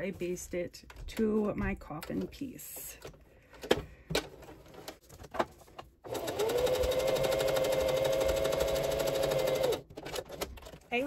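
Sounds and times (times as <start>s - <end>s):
sewing machine stitching: 6.1s - 10.5s.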